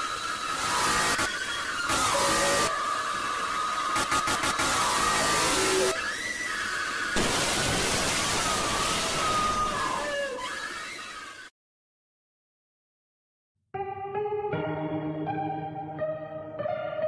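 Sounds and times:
scream-like high wails: 0:00.0 - 0:11.5
harsh static-like hiss: 0:07.2 - 0:09.8.

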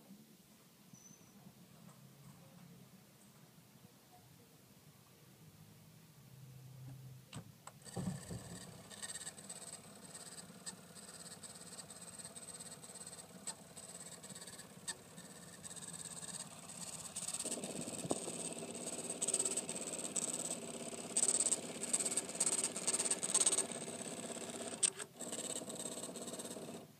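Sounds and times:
printer motor hum: 0:07.7 - 0:26.9
printing noise: 0:07.8 - 0:26.9.

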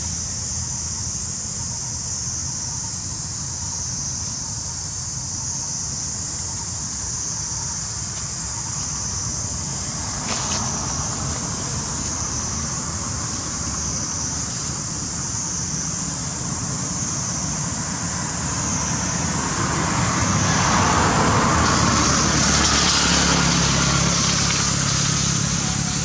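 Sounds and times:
high wavering hiss: 0:00.0 - 0:26.0.

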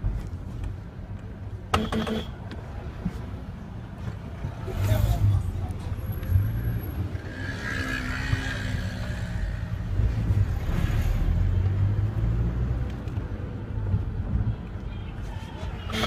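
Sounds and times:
road noise inside car: 0:00.0 - 0:16.0.

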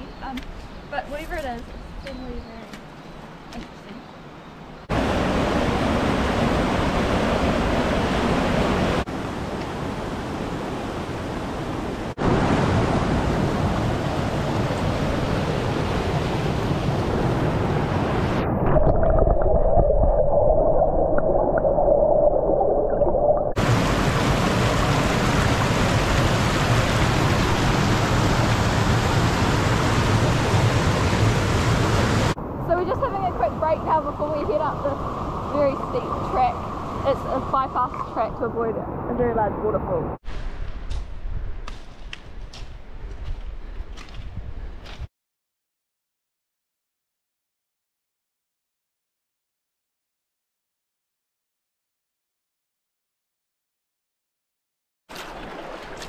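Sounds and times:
small waterfall: 0:04.9 - 0:16.6, 0:23.5 - 0:37.7, 0:55.1 - 0:56.0
river water rushing: 0:04.9 - 0:18.4, 0:23.6 - 0:37.8, 0:55.1 - 0:56.0
underwater gurgling bubbles: 0:18.6 - 0:23.6.

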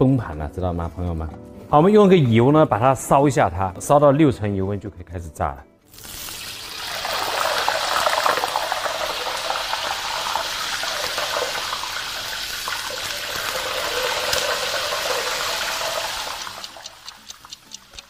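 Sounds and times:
hot oil sizzling on chicken: 0:05.9 - 0:18.0
regular ticking: 0:14.5 - 0:18.0.

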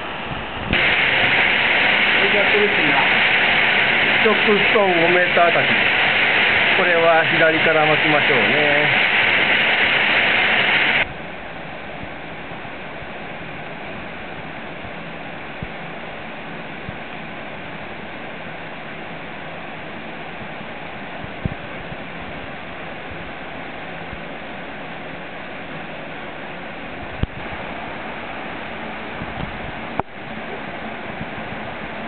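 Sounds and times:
stream water rushing: 0:00.0 - 0:11.1.

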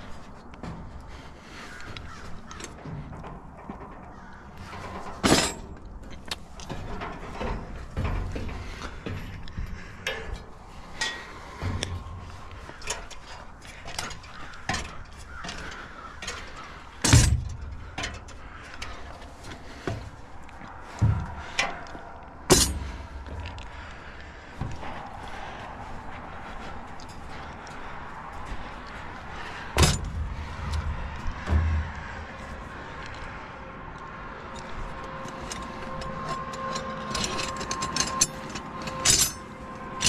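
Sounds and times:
boots knocking on metal rungs: 0:00.0 - 0:33.3, 0:34.6 - 0:40.0
tools clanking in bag: 0:35.4 - 0:39.4.

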